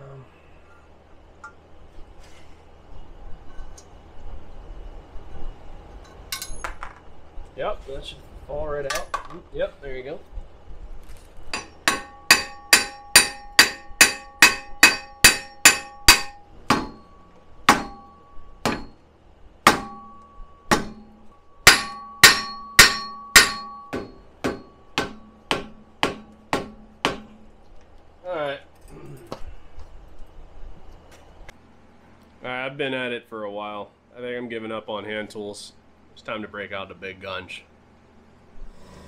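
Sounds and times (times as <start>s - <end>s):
hammer striking metal hub: 6.3s - 6.9s, 11.6s - 19.0s, 19.6s - 27.5s.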